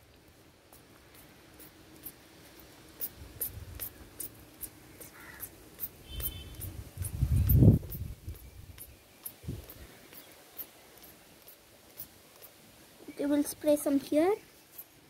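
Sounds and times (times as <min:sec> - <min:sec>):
spray bottle squirting: 0:00.7 - 0:12.6
low rumble of wind on microphone: 0:06.1 - 0:08.8, 0:09.4 - 0:10.0.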